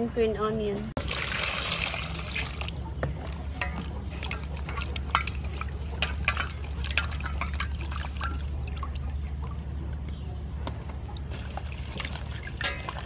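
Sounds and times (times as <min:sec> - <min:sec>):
hands splashing vegetables in water: 0:01.0 - 0:02.8, 0:11.3 - 0:13.0
water pouring into metal bowl: 0:01.0 - 0:02.8, 0:03.6 - 0:09.5, 0:11.3 - 0:13.0.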